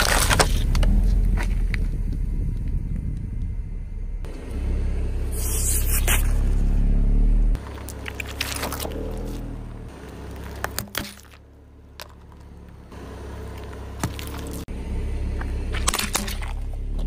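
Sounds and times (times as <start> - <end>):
tyre crushing plastic crackling: 0.0 - 0.9, 7.6 - 9.5
car engine and tyre rumble: 0.0 - 17.0.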